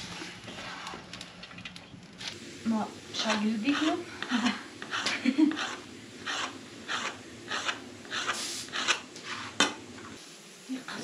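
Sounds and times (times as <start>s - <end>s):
hands rubbing dough: 3.2s - 9.6s.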